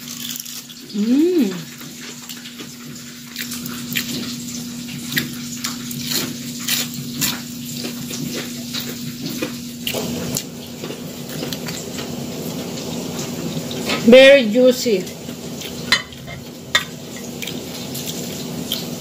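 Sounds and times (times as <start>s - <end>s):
crispy fried fish crunching: 0.0s - 1.0s, 1.7s - 12.8s.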